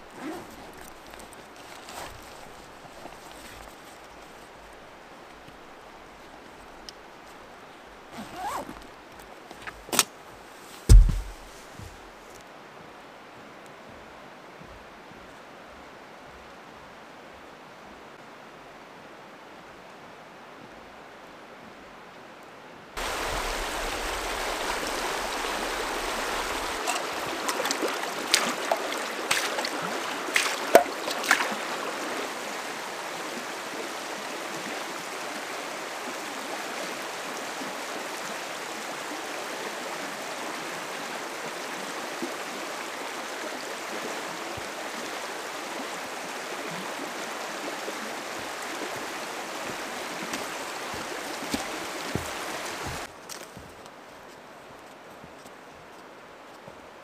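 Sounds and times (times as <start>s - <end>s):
river rushing over stones: 10.7s - 19.3s, 23.0s - 54.2s.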